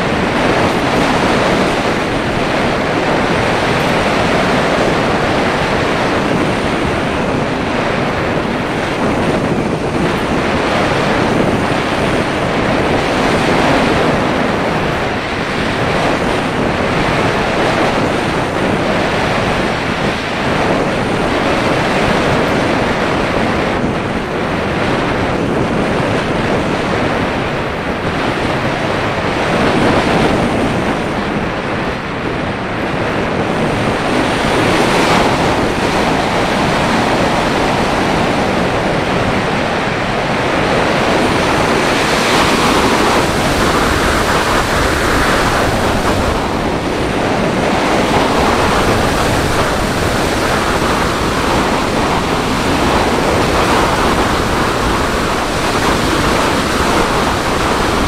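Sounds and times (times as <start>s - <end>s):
wind noise on microphone: 0.0s - 58.0s.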